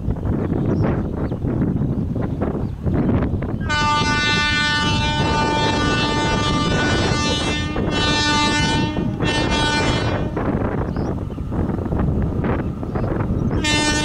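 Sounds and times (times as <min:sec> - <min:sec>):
train rumbling: 0:00.0 - 0:14.0
locomotive horn blasts: 0:03.6 - 0:10.6, 0:13.6 - 0:14.0.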